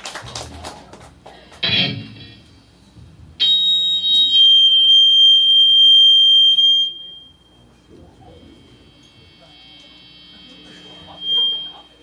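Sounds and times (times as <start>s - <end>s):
guitar amplifier feedback squealing: 1.6s - 2.6s, 3.4s - 12.0s.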